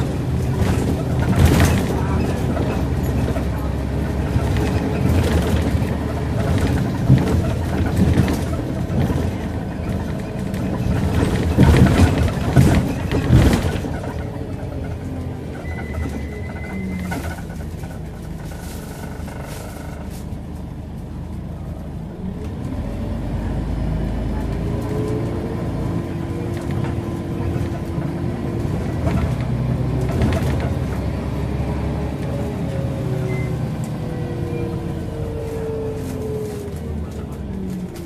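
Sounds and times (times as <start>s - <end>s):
body rattles: 0.0s - 20.3s
bus diesel engine running: 0.0s - 38.0s.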